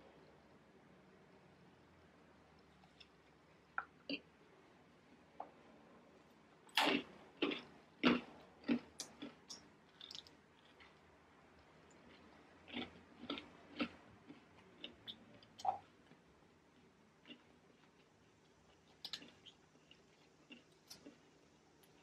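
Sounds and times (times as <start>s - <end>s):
person chewing crunchy lettuce: 6.7s - 11.0s, 12.1s - 15.2s.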